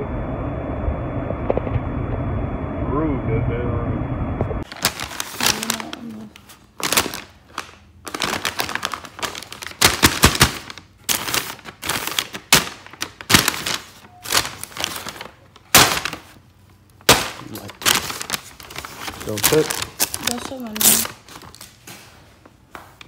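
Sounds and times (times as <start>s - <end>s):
paper bag crinkling: 4.6s - 22.1s.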